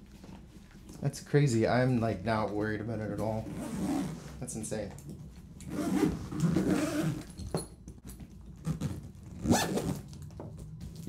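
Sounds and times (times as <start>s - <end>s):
zipper being pulled closed: 3.4s - 4.2s, 5.6s - 7.4s, 8.6s - 10.1s.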